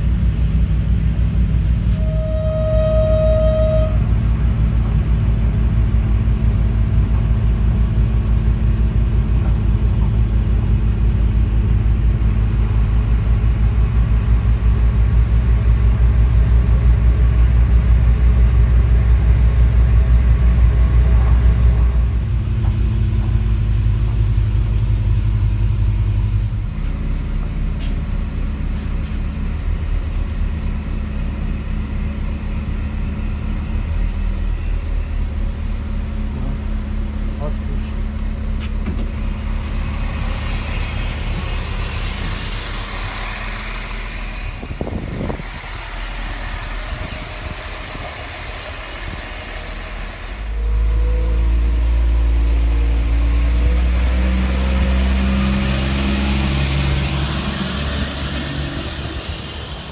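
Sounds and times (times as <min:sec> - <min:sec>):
train engine humming: 0:00.0 - 0:59.9
faint high whine: 0:01.9 - 0:04.8.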